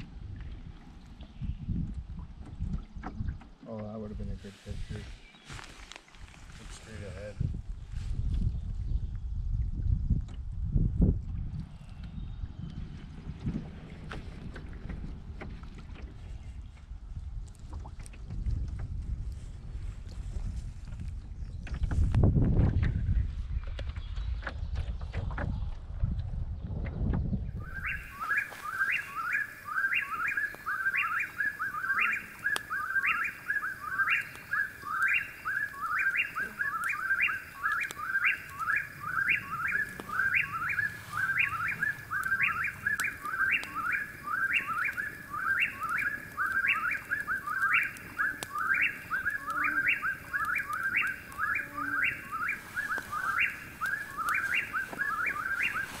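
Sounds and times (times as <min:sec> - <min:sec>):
bird call with falling trill: 0:27.6 - 0:56.0.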